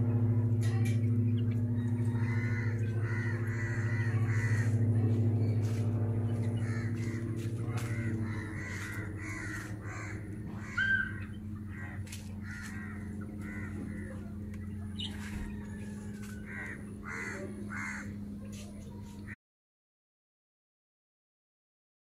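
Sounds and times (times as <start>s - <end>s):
steady low hum: 0.0s - 19.4s.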